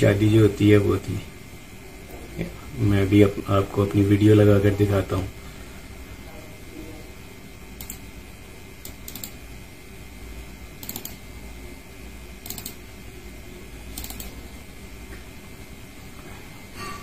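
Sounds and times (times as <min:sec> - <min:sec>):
steady low hum: 0:00.0 - 0:17.0
sharp double clicks: 0:08.8 - 0:09.4, 0:10.8 - 0:11.2, 0:12.4 - 0:12.8, 0:13.9 - 0:14.4.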